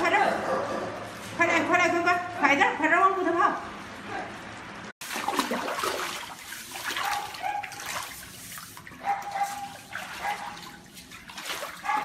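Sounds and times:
water splashing and sloshing: 5.0s - 12.0s.

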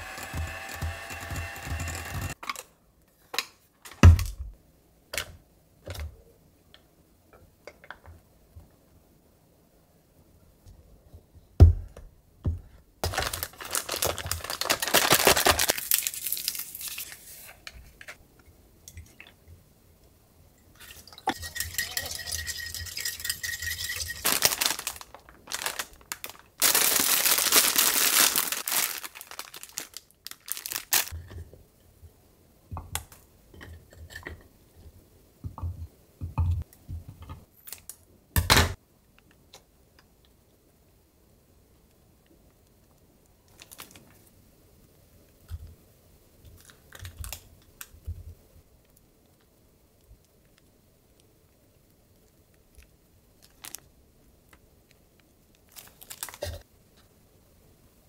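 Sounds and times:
plastic packaging crinkling and tearing: 13.0s - 17.5s, 24.0s - 31.2s, 43.5s - 44.2s, 52.7s - 53.9s, 55.5s - 56.6s.

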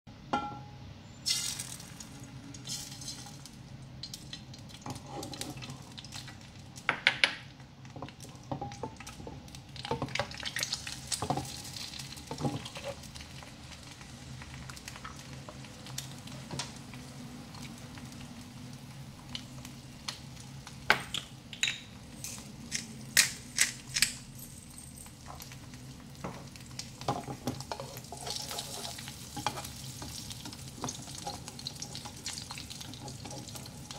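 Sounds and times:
egg sizzling in oil: 1.2s - 6.9s, 7.8s - 23.9s, 25.0s - 33.9s
oil popping and crackling: 1.3s - 24.4s, 25.0s - 33.9s.

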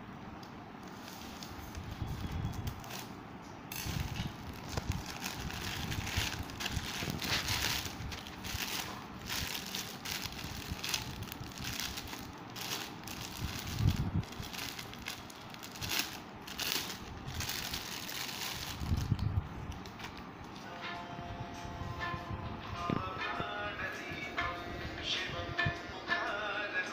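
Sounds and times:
plastic bag crinkling: 0.8s - 20.6s.

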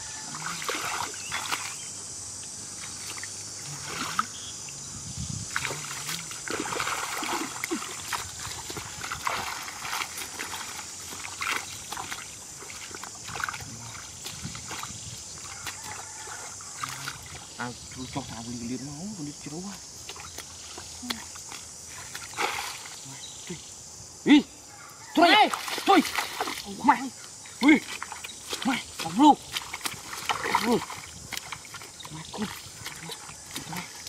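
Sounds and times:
mud squelching: 0.0s - 2.0s, 2.6s - 4.5s, 5.4s - 23.6s, 25.2s - 34.0s
hands splashing in muddy water: 0.3s - 1.8s, 2.8s - 4.3s, 5.5s - 17.4s, 20.0s - 23.0s, 25.3s - 26.8s, 27.6s - 34.0s.

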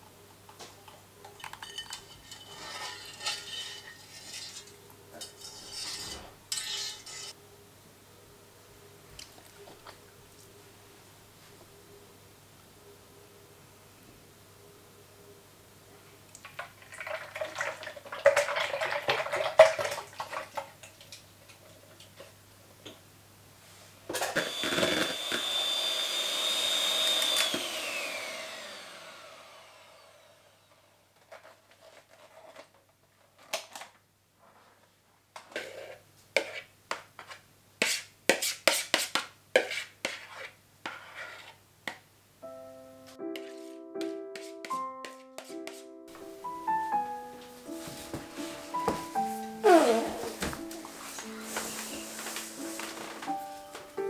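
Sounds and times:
kitchen utensils clattering: 1.3s - 7.4s
electric hand mixer whining: 24.2s - 31.0s.

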